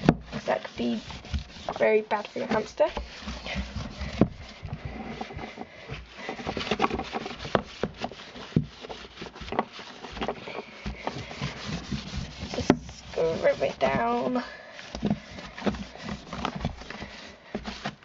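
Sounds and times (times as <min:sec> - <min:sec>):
towel scrubbing plastic bin: 0:00.0 - 0:18.0
plastic knocks and clicks: 0:14.9 - 0:18.0.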